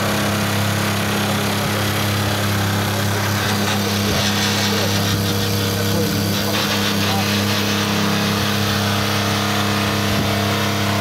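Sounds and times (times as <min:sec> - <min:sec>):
electric train equipment hum: 0:00.0 - 0:11.0.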